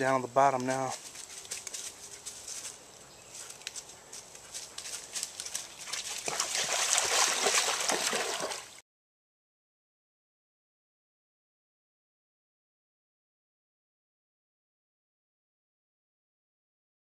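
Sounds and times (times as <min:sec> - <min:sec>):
dog splashing through water: 0:04.8 - 0:08.8.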